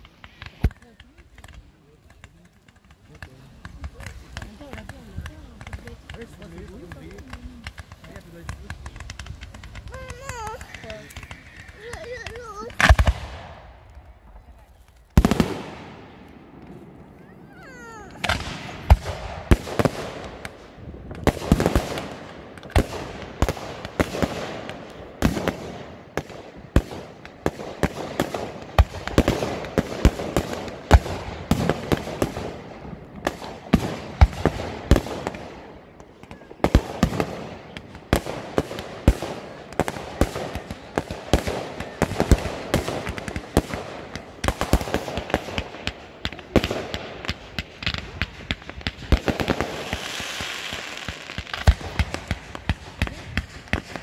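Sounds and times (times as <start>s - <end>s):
fireworks bursting: 0.0s - 54.0s
firework whistling: 7.9s - 13.2s.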